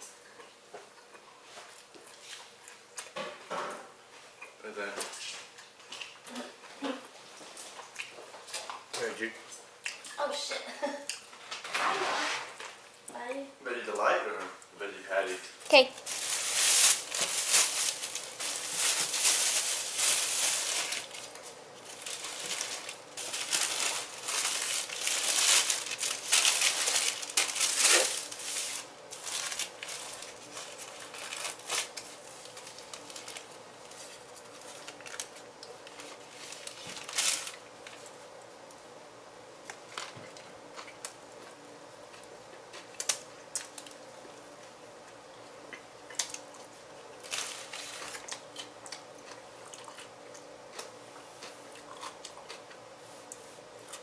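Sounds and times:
plastic and paper wrapper crinkling: 0:15.7 - 0:38.1, 0:47.2 - 0:48.4.

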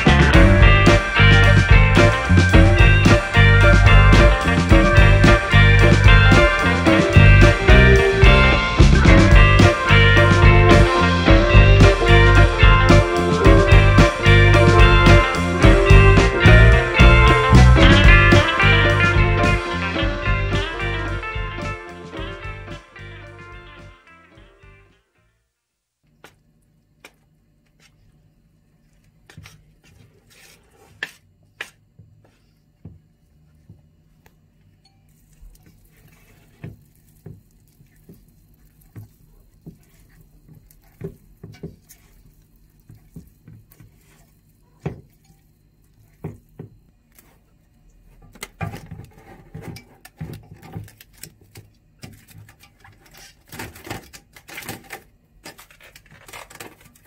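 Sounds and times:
hands working dough: 0:26.1 - 0:57.0.

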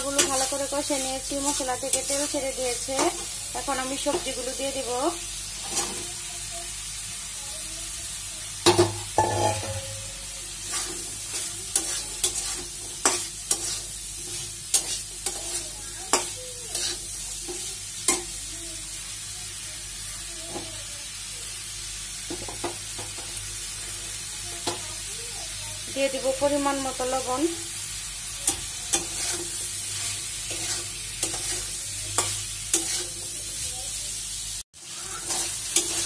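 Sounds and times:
spatula scraping a metal pan: 0:00.0 - 0:04.5, 0:05.5 - 0:06.2, 0:09.2 - 0:18.4, 0:28.4 - 0:33.6, 0:35.0 - 0:36.0
vegetables sizzling in hot oil: 0:00.0 - 0:36.0.

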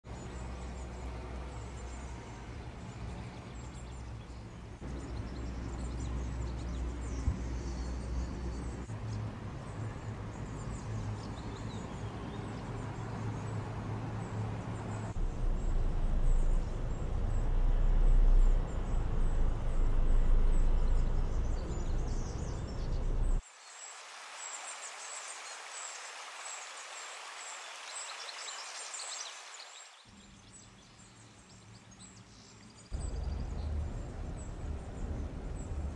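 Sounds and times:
heavy low rumble: 0:15.1 - 0:23.4, 0:33.0 - 0:35.9.

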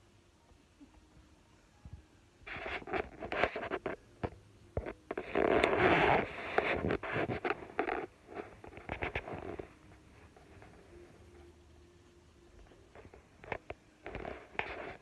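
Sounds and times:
phone rustling against fabric: 0:02.4 - 0:11.7, 0:12.5 - 0:15.0.

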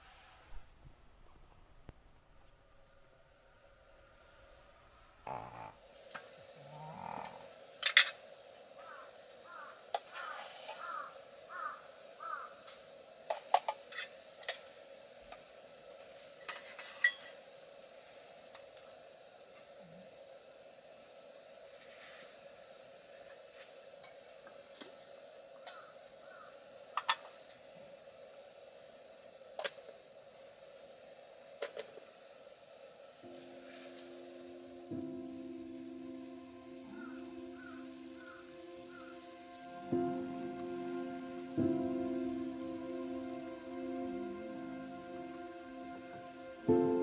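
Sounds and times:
faint steady hum: 0:00.0 - 0:47.0
crow cawing: 0:08.8 - 0:12.8, 0:25.6 - 0:27.2, 0:36.9 - 0:39.2
tableware clinking: 0:16.4 - 0:17.4.

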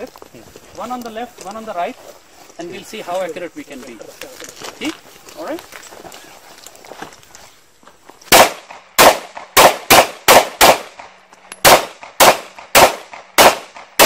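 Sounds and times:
pistol shots: 0:08.3 - 0:14.0.

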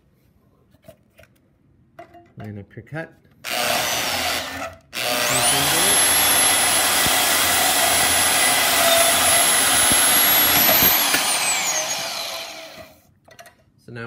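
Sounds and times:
bandsaw cutting steel: 0:03.5 - 0:13.0.

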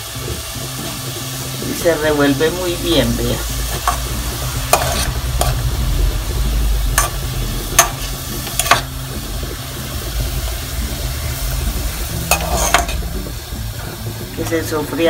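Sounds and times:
low hum: 0:00.0 - 0:15.0
onions frying in oil: 0:00.0 - 0:15.0
metal spoon scraping a pot: 0:04.7 - 0:05.6, 0:07.0 - 0:08.9, 0:12.1 - 0:13.1.

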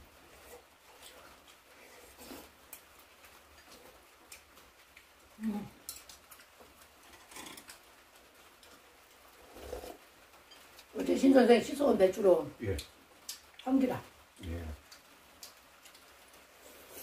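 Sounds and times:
people slurping soup: 0:07.1 - 0:07.7, 0:09.4 - 0:10.0.

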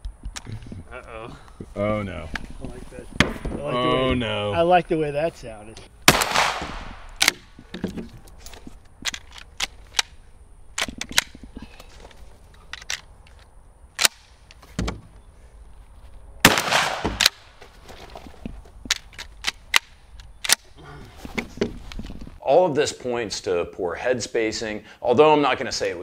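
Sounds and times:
shotgun shot: 0:06.1 - 0:07.1, 0:16.4 - 0:17.4.

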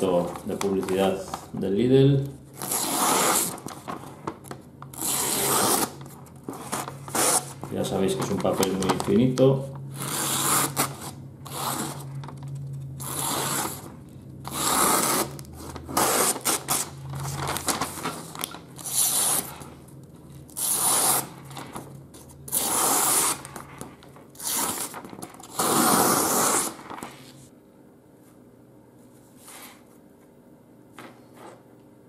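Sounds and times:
paper rustling: 0:02.9 - 0:09.4, 0:15.7 - 0:18.6.

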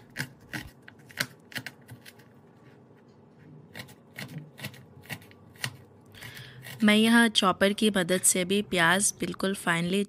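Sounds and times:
knife chopping on cutting board: 0:03.7 - 0:05.8.

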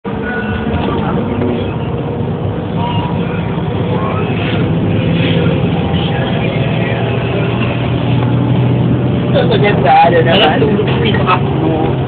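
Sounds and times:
bus engine drone inside cabin: 0:00.0 - 0:12.0.

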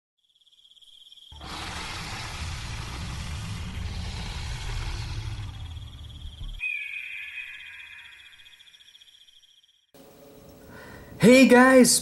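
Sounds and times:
crickets chirping: 0:00.2 - 0:11.5
loud low rough rumble: 0:01.4 - 0:06.6
high falling tone: 0:01.4 - 0:08.6.

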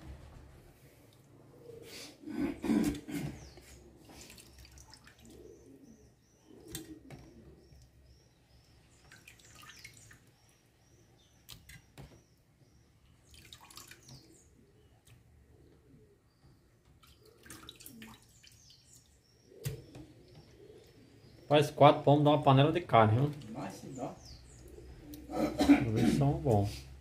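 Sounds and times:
small bird chirping: 0:04.5 - 0:15.2, 0:16.2 - 0:21.6, 0:23.2 - 0:25.4.

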